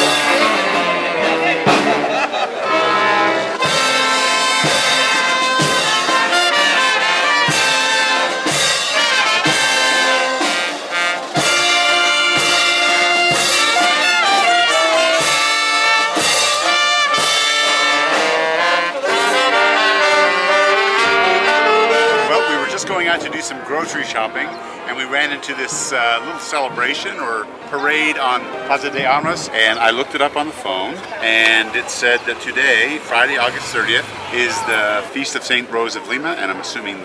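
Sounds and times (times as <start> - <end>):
brass marching band playing: 0.0 - 35.7.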